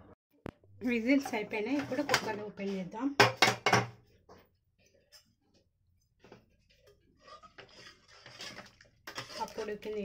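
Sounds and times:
ladle scraping in pot: 6.6 - 10.0.

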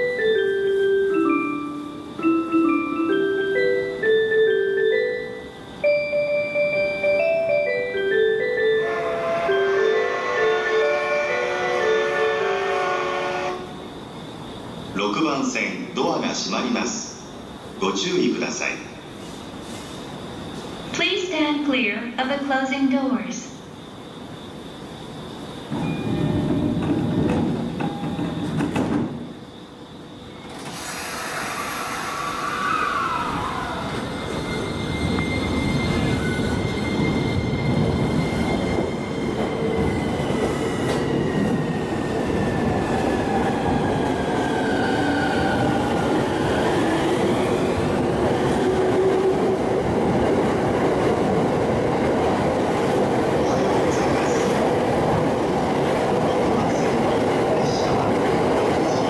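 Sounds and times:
rumble and clatter of wheels: 25.8 - 29.3
electric train motors whining: 30.0 - 50.0.

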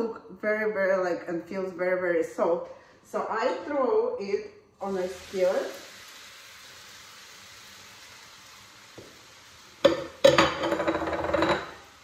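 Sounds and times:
food sizzling in a skillet: 4.8 - 12.0.

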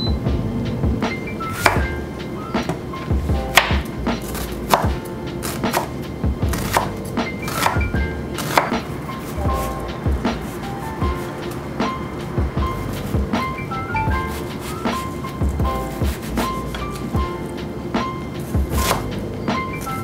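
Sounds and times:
background music: 0.0 - 20.0
knife chopping onion on cutting board: 1.6 - 1.9, 3.5 - 11.4, 14.2 - 17.3, 18.4 - 19.2.

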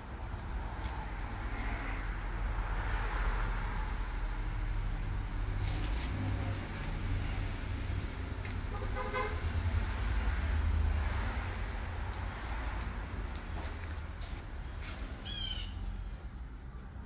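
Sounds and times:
steady low rumble: 3.5 - 14.8.

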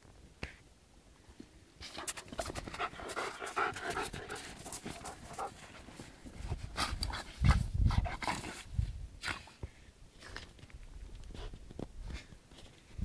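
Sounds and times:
dog panting heavily: 2.0 - 8.7.

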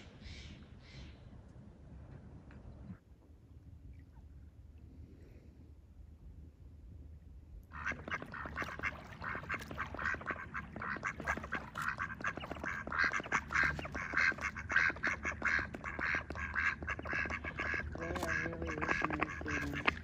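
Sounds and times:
ducks quacking: 7.7 - 20.0.

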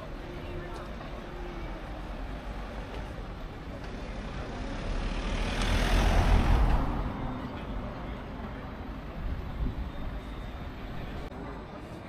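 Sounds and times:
street traffic: 0.0 - 12.0
vehicle driving past: 4.1 - 7.6.

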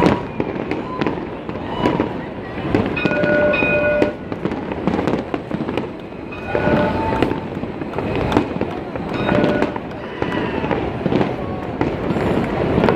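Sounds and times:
fireworks bangs and crackles: 0.0 - 12.9
held high tone: 3.0 - 4.2, 6.3 - 7.4.

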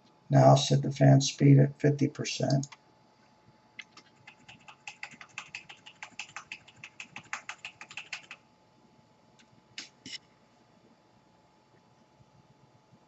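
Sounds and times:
typing on keyboard: 3.8 - 8.4.

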